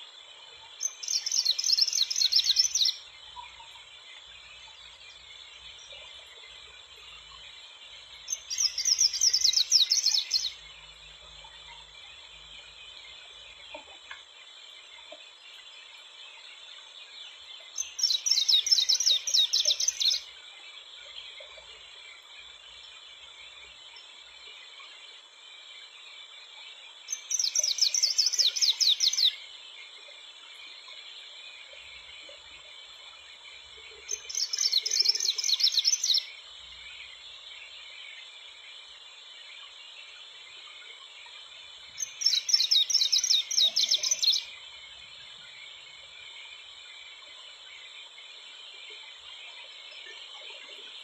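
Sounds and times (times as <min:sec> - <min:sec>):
high-pitched insect background: 0:00.0 - 0:51.0
songbird singing: 0:00.0 - 0:51.0.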